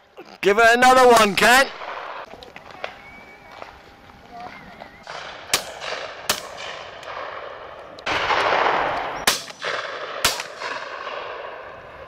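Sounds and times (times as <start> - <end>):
loud shotgun shots: 5.0 - 11.6
distant shotgun shots: 5.0 - 11.8.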